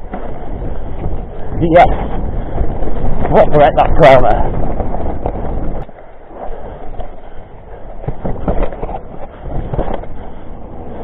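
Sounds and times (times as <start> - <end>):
bike tyres rolling over dirt: 0.0 - 11.0
bike rattling knocks: 7.9 - 10.3.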